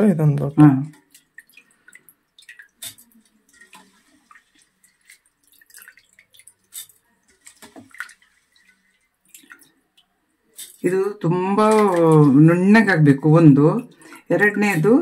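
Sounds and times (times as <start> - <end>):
water dripping and splashing: 0.0 - 15.0.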